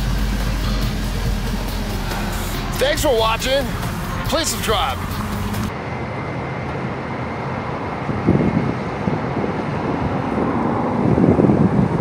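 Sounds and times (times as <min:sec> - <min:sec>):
road traffic rumble: 0:00.0 - 0:12.0
wind buffeting microphone: 0:06.5 - 0:12.0.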